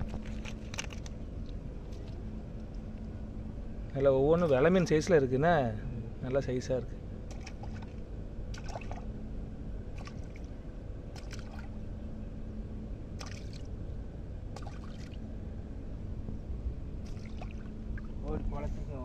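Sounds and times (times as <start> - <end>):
water splashing and sloshing: 0.0 - 2.9, 7.2 - 9.2, 9.9 - 11.9, 13.1 - 13.8, 14.5 - 15.3, 17.0 - 18.5
steady low rumble: 0.0 - 19.0.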